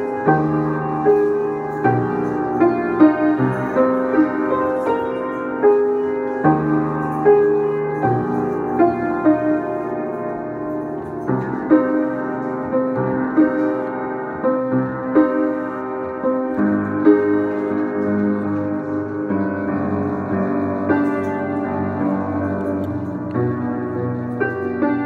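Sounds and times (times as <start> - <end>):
upright piano notes and chords: 0.0 - 25.0.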